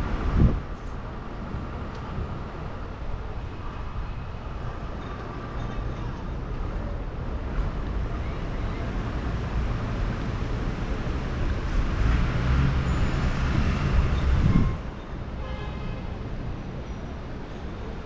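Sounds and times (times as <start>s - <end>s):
passing cars and buses rumble: 0.0s - 18.0s.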